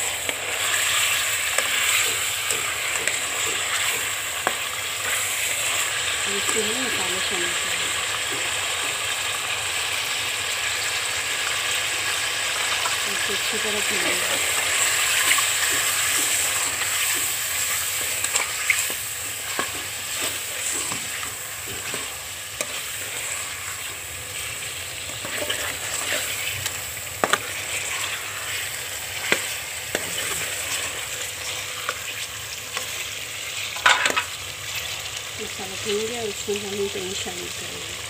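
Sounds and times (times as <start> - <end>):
chicken sizzling in hot oil: 0.0 - 38.0
metal ladle scraping pot: 18.2 - 28.6.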